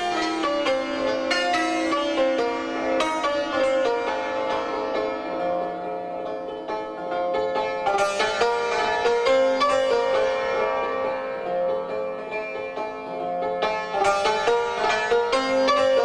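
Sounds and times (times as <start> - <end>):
santur struck with mallets: 0.0 - 16.0.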